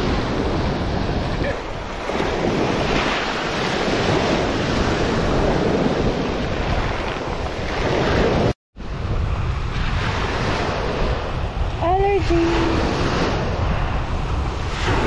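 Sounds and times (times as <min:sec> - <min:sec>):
wind buffeting microphone: 0:00.0 - 0:15.0
waves washing over pebbles: 0:01.5 - 0:08.5.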